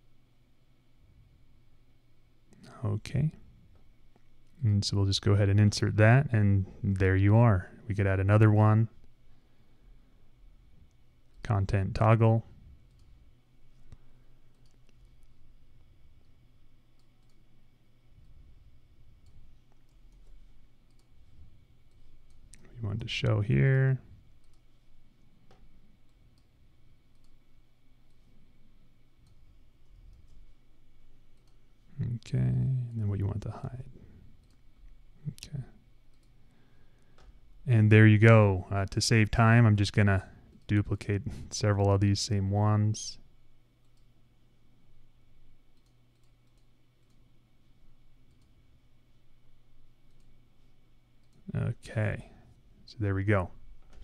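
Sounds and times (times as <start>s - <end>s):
low steady hum: 0.0s - 54.0s
computer mouse clicks: 12.8s - 15.4s, 16.2s - 17.4s, 19.2s - 21.2s, 24.3s - 24.7s, 25.4s - 27.4s, 29.2s - 30.5s, 31.3s - 31.6s, 34.4s - 34.7s, 35.4s - 36.4s, 45.7s - 47.3s, 48.2s - 48.6s, 50.0s - 50.4s.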